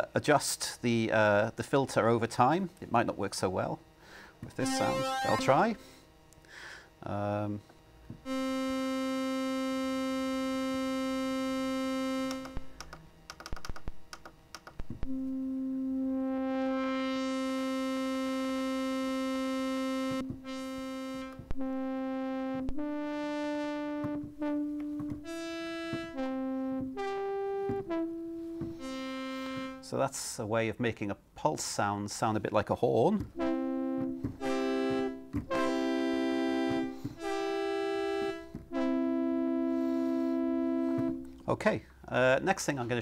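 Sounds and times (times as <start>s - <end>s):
synth chip tones: 4.6s - 5.8s.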